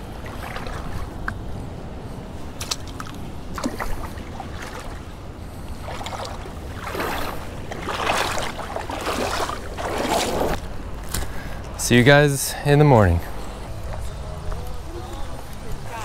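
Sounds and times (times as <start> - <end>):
feet wading in water: 0.0 - 11.3.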